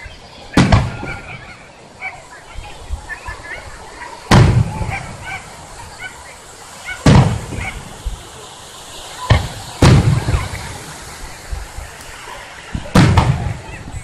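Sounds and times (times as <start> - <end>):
fireworks booming: 0.5 - 1.7, 4.2 - 6.0, 6.9 - 14.0.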